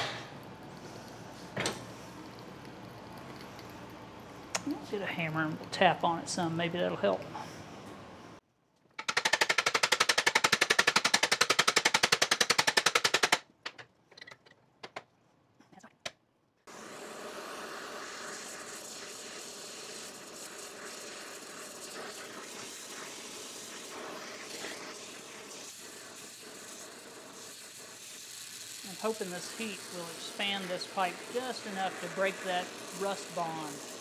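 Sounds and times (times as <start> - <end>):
torch flame hissing: 0.0 - 5.9, 16.6 - 34.0.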